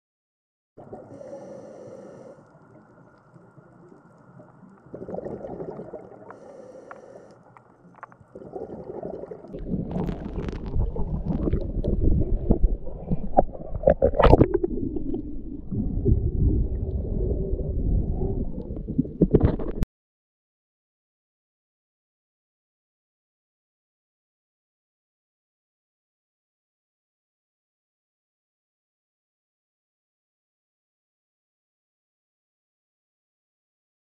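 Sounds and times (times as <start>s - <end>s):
underwater rumbling and sloshing: 0.8s - 19.8s
scattered crackles: 2.4s - 19.8s.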